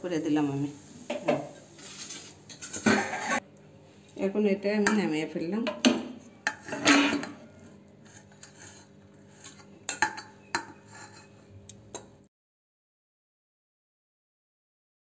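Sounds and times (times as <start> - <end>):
metal spatula scraping a pan: 1.1 - 3.4, 6.4 - 11.6.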